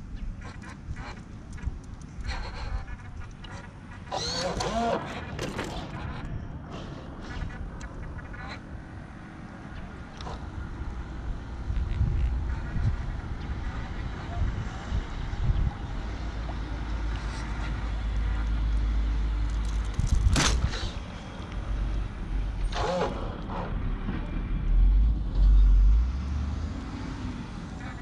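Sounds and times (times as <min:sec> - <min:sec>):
wind buffeting microphone: 0:09.9 - 0:16.5.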